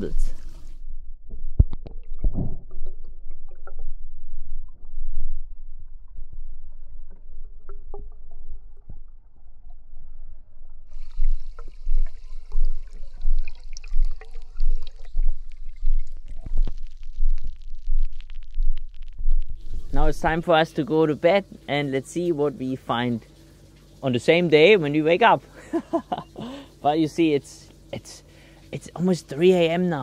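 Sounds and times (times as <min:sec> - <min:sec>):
underwater bubbles rumbling: 0:00.0 - 0:20.5.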